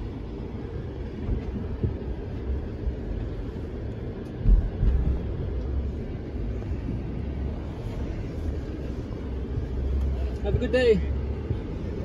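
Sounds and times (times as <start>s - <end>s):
truck engine running low: 0.0s - 12.0s
low thumps: 4.3s - 5.9s.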